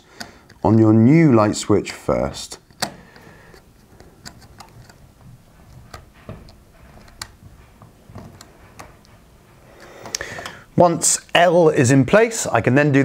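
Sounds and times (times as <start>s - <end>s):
screwdriver clicking on switch screw: 2.7s - 5.0s.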